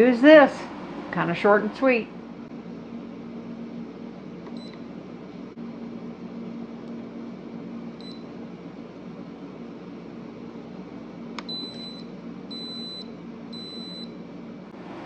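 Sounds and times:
control panel beeps: 4.5s - 4.8s, 8.0s - 8.3s, 11.4s - 14.2s.

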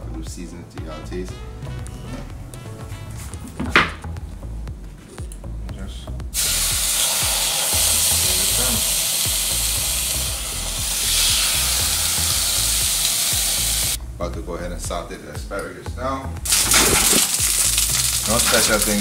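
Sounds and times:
fish sizzling on a hot grill: 6.4s - 14.0s, 16.5s - 19.0s.

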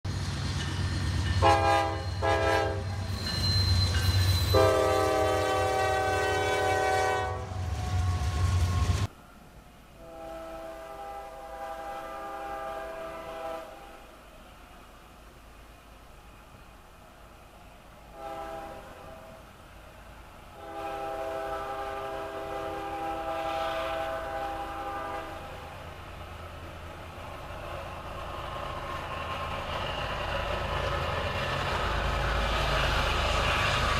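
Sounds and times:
locomotive chime horn blasts: 1.4s - 9.1s, 10.0s - 14.0s, 18.1s - 19.4s, 20.6s - 25.6s.

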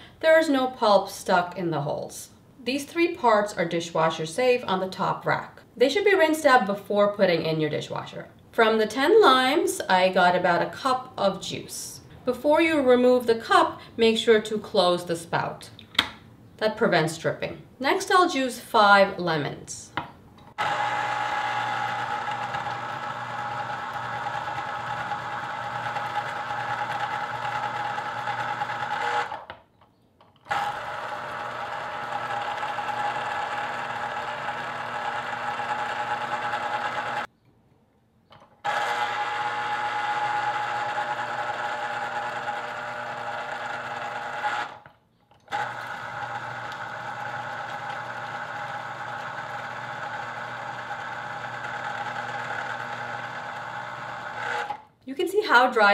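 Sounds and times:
citrus juicer motor humming: 20.6s - 29.4s, 30.5s - 37.3s, 38.7s - 44.8s, 45.4s - 54.8s.

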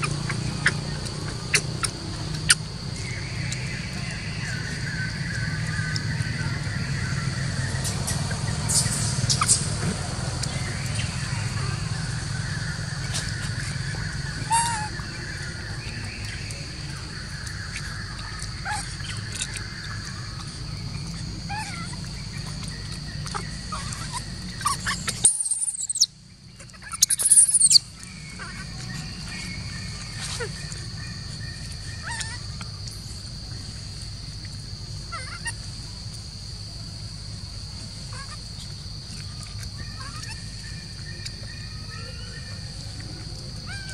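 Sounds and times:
bird calls and chirps: 0.0s - 43.9s
loud shrill calls: 10.4s - 20.6s, 23.2s - 32.6s, 39.3s - 43.0s.

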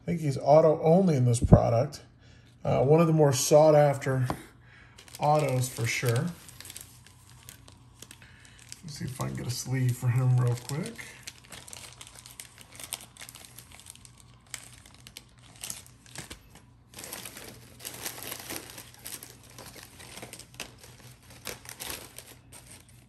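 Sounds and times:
plastic wrappers crinkling: 4.9s - 23.0s.

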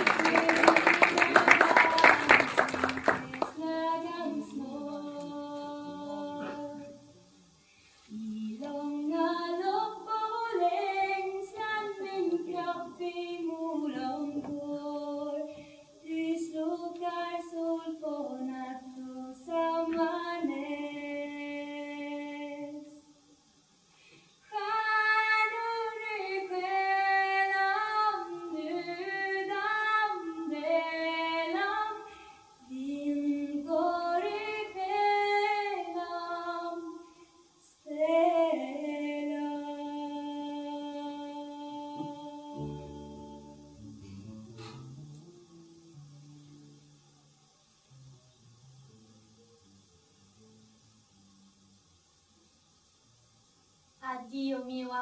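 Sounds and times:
woman singing unaccompanied: 0.0s - 7.4s, 8.1s - 23.2s, 24.4s - 43.8s, 54.0s - 55.0s.

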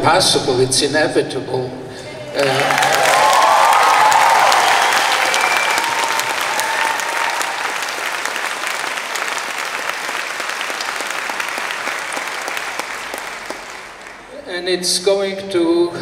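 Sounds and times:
audience applauding: 2.2s - 14.6s.

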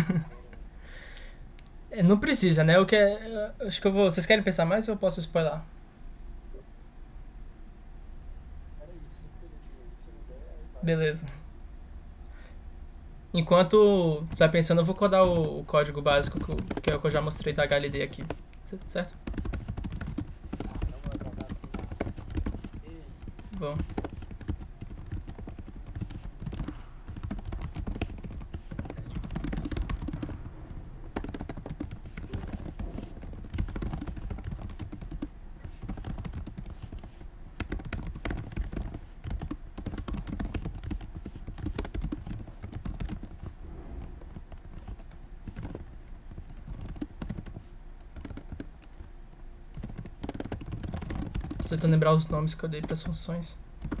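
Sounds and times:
keyboard typing: 14.2s - 49.1s, 49.7s - 53.2s, 53.8s - 54.0s.

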